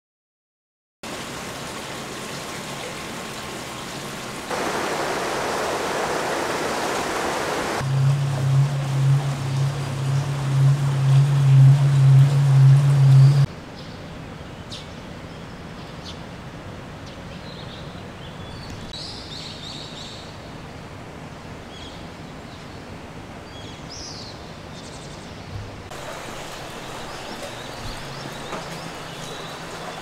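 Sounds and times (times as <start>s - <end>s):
loud low hum: 4.5s - 13.5s.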